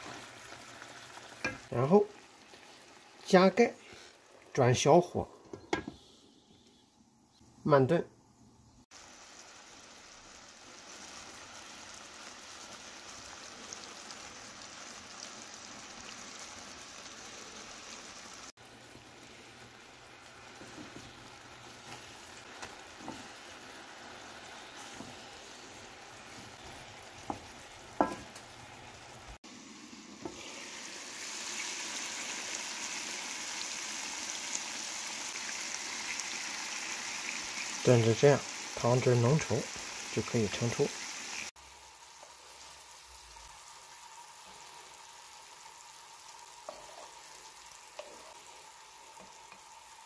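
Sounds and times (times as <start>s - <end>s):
sauce bubbling and sizzling in a pan: 0.0s - 4.8s, 8.8s - 50.0s
spatula knocking against pan: 27.2s - 28.3s
spatula stirring: 46.6s - 49.6s.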